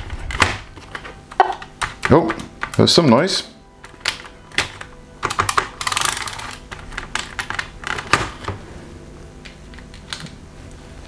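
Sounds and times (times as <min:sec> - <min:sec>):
plastic keyboard keys clicking: 0:00.0 - 0:08.5.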